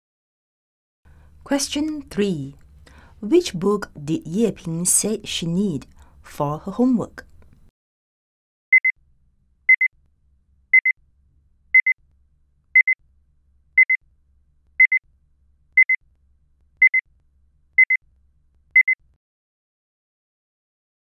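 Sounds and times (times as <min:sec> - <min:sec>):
timer double beeps: 0:12.8 - 0:13.0, 0:14.8 - 0:15.0, 0:18.8 - 0:19.0.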